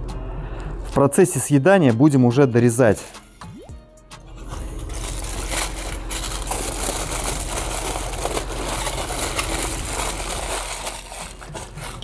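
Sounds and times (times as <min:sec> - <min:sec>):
aluminium foil crinkling: 0:04.3 - 0:12.0.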